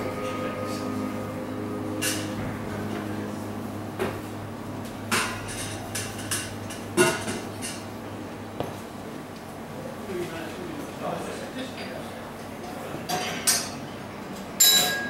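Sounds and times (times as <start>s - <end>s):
steady low hum: 0.0s - 12.6s
crockery and glassware clinking: 14.6s - 15.0s.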